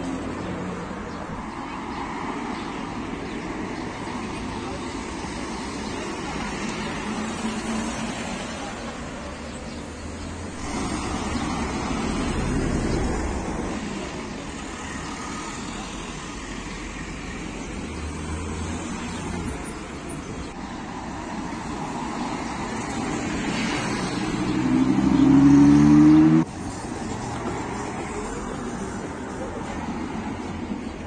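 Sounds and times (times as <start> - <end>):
traffic noise: 0.0 - 31.0
sports car accelerating: 24.4 - 26.5.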